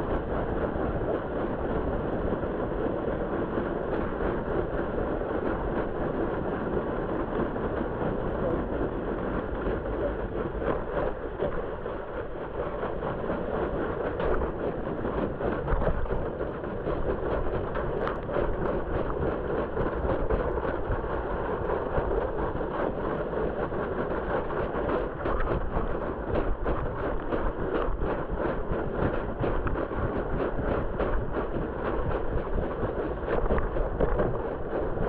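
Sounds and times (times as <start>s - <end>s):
plastic sled scraping on snow: 3.3s - 35.0s
small crackles: 9.4s - 35.0s.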